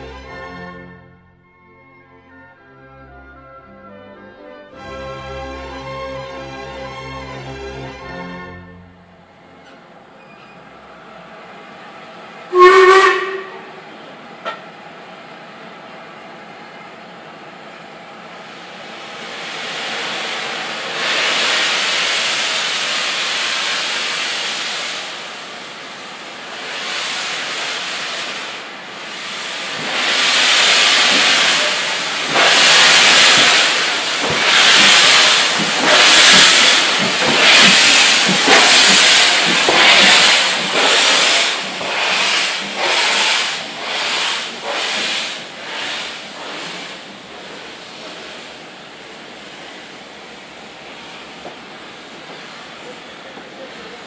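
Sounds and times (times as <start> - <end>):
steam locomotive hissing: 12.5 - 14.6, 18.2 - 54.0
locomotive exhaust beats: 29.2 - 46.8.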